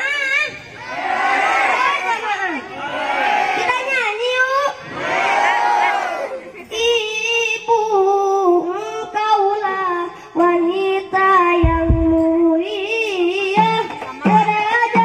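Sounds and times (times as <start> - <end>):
boy singing into microphone: 0.0 - 0.7, 3.6 - 4.8, 6.6 - 15.0
hand drums deep strokes: 11.6 - 12.4.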